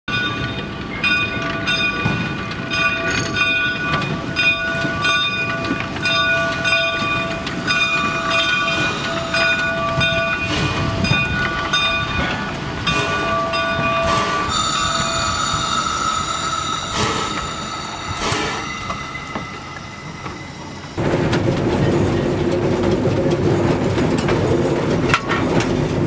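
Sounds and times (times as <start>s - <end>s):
steam locomotive exhaust chuffing: 3.3s - 26.0s
shrill metallic tones: 6.9s - 21.6s.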